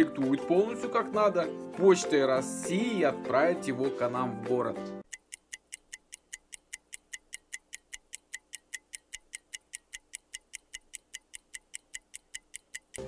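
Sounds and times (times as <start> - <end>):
clock ticking fast: 5.0 - 13.0.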